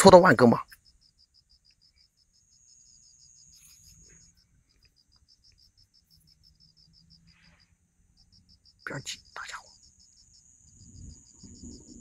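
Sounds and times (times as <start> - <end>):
cricket chirping: 0.0 - 12.0
thin high insect buzz: 0.7 - 12.0.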